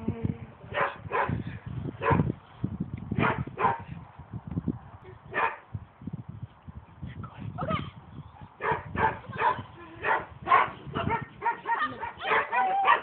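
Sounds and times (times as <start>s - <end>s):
dog barking: 0.8s - 1.4s, 2.0s - 2.3s, 3.2s - 3.8s, 5.3s - 5.6s, 8.6s - 13.0s.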